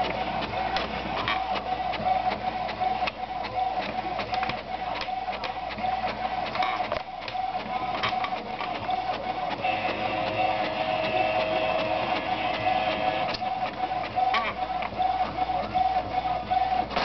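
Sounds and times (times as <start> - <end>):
printer whining: 0.0 - 17.0
printer mechanism clicks: 8.0 - 14.6.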